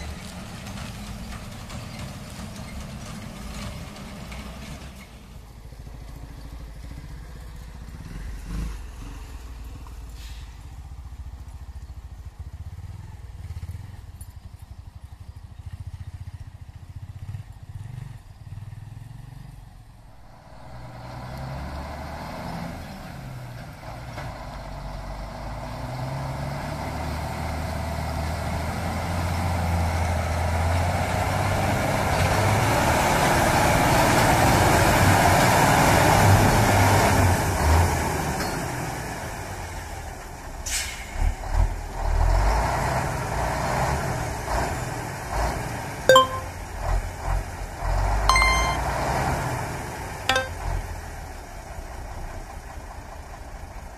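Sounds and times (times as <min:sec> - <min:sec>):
truck diesel engine rumbling: 0:00.0 - 0:08.4.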